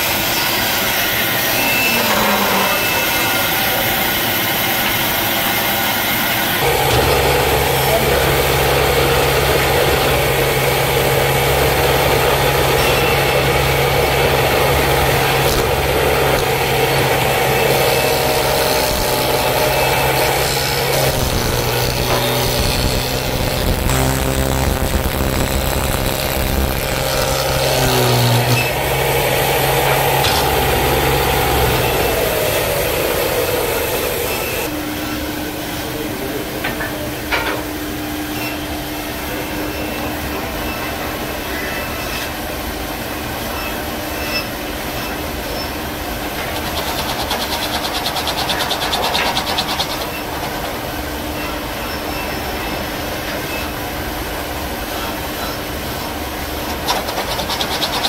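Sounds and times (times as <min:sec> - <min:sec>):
cutter hollowing wood: 0:00.0 - 0:34.7, 0:43.6 - 0:54.1, 0:54.8 - 0:58.0
motor humming: 0:00.6 - 0:34.8
fast rasping cutting: 0:06.6 - 0:34.7, 0:46.6 - 0:50.4, 0:56.7 - 0:58.0
spindle cutter shaping wood: 0:06.6 - 0:34.7, 0:46.4 - 0:50.8, 0:56.6 - 0:58.0.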